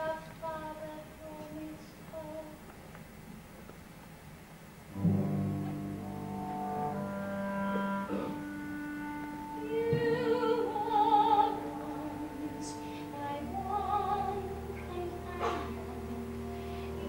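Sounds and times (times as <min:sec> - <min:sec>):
soprano singing ballad: 0:00.0 - 0:02.7, 0:07.2 - 0:17.0
orchestral chords: 0:04.9 - 0:17.0.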